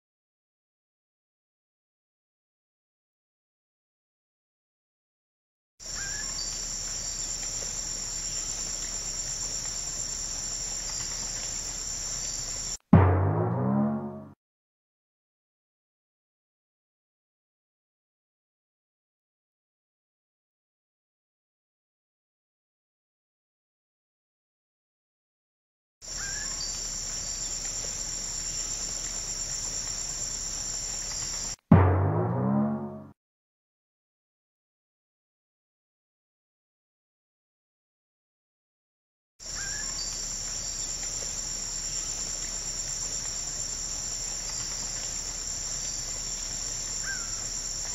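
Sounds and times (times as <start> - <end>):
high-pitched insect chorus: 5.8 - 12.8, 26.1 - 31.6, 39.4 - 47.9
loud upward-bending pitched sound: 13.0 - 14.4, 31.7 - 33.2.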